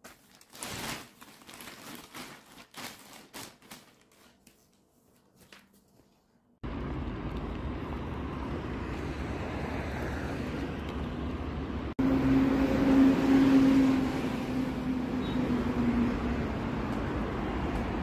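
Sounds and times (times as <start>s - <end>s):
engine hum: 6.6s - 18.0s
passing cars: 6.6s - 18.0s.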